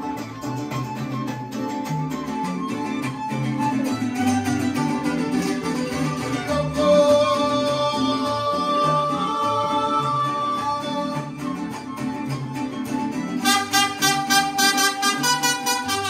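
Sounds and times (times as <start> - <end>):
plucked bass line: 0.0 - 16.0
strummed guitars: 0.0 - 16.0
violins: 0.0 - 16.0.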